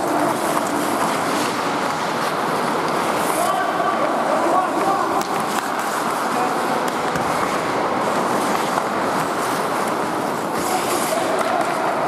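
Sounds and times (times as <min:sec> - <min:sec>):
hockey sticks and puck clicking: 0:00.0 - 0:12.0
skates scraping on ice: 0:00.0 - 0:12.0.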